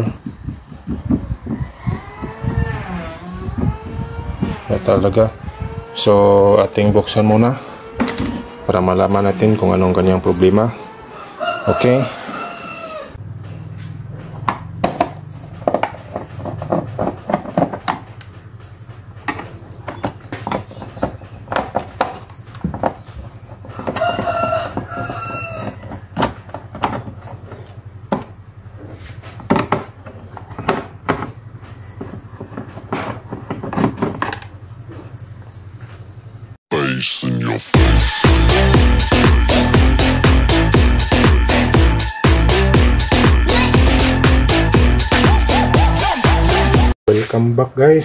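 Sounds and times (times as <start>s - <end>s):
rooster crowing: 1.4s - 4.4s, 10.0s - 13.2s, 23.7s - 26.1s.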